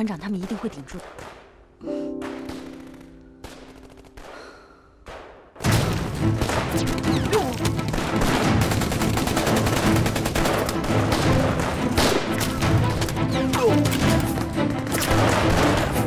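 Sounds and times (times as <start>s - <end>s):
dramatic music score: 1.8s - 16.0s
rapid rifle gunfire: 2.5s - 12.8s, 14.9s - 16.0s.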